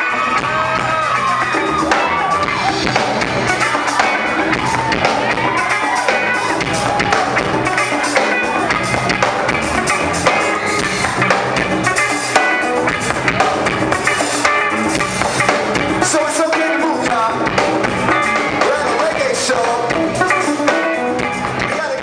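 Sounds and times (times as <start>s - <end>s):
live band playing: 0.0s - 22.0s
person singing: 15.9s - 22.0s.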